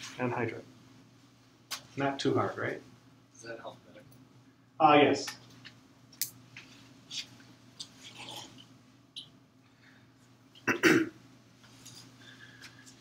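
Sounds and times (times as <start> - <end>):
person coughing: 10.6 - 11.2.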